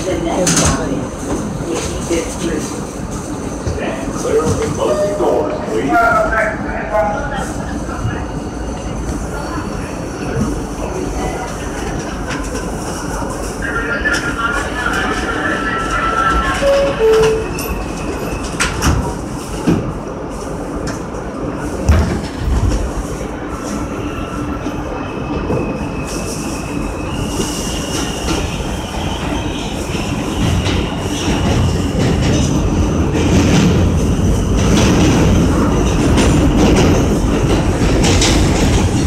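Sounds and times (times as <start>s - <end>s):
subway train propulsion whine: 0.0s - 39.0s
rail joints clacking: 29.2s - 39.0s.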